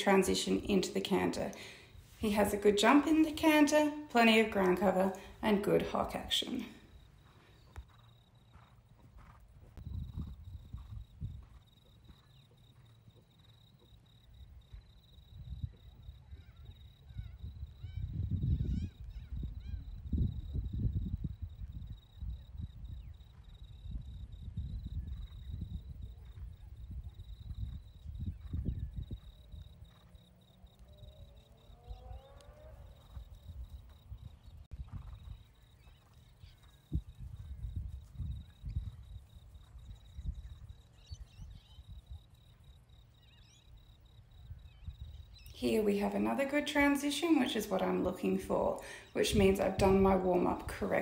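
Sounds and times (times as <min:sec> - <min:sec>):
high insect trill: 0:06.7 - 0:46.5
bird chirps: 0:34.1 - 0:37.6, 0:39.8 - 0:42.2, 0:43.1 - 0:45.6.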